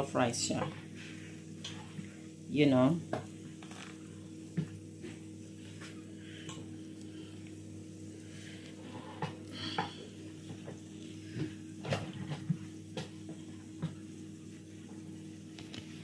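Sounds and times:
steady low hum: 0.0s - 16.0s.

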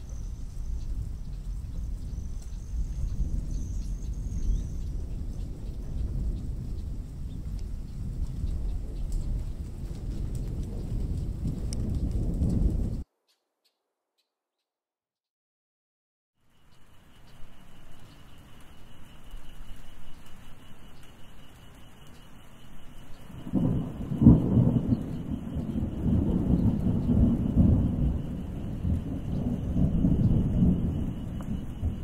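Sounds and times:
rain falling: 0.0s - 13.0s, 16.4s - 32.0s
thunder rolling: 0.0s - 13.0s, 23.1s - 32.0s.

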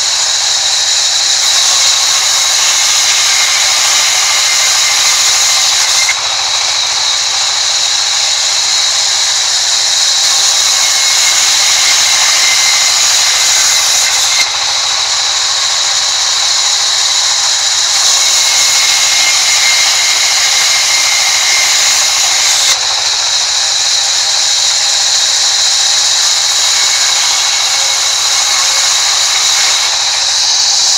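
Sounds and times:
band saw ripping wood: 0.9s - 8.0s, 10.1s - 16.1s, 26.2s - 30.9s.

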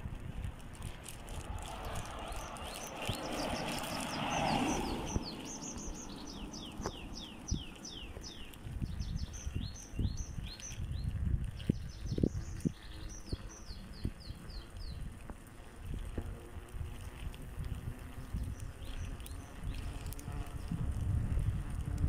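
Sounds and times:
wind rumble on microphone: 0.0s - 22.0s
songbird chirping: 0.8s - 15.3s
car passing close by: 1.3s - 7.4s.

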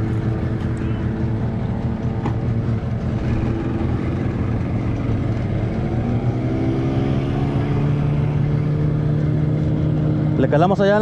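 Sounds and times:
outboard motor running: 0.0s - 6.2s.

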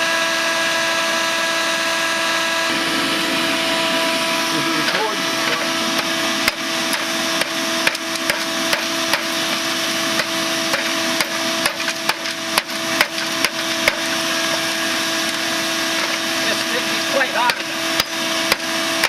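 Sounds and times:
steady hum: 0.0s - 19.0s
hammer striking metal: 4.8s - 9.4s, 10.2s - 14.2s, 17.4s - 18.7s.

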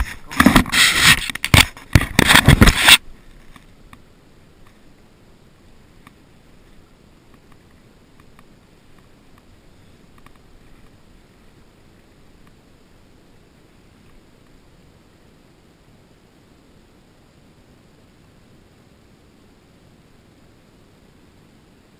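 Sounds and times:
hand scraping on camera microphone: 0.0s - 3.7s
faint river hiss: 0.0s - 21.9s.

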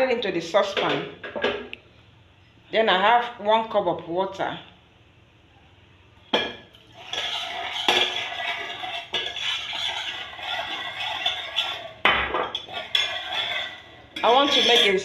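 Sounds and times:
spoon stirring in saucepan: 6.7s - 15.0s.

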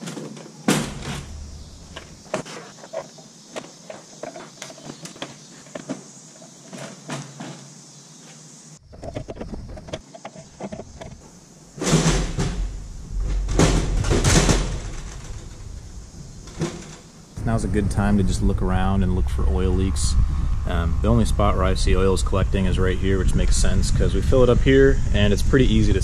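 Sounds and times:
low rumble: 17.4s - 25.4s.

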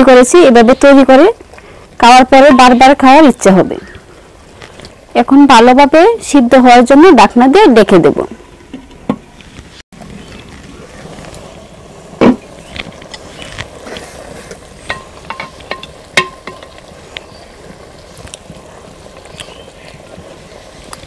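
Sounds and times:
steady low hiss: 0.0s - 21.0s
metal spatula tapping clay pot: 14.8s - 16.7s.

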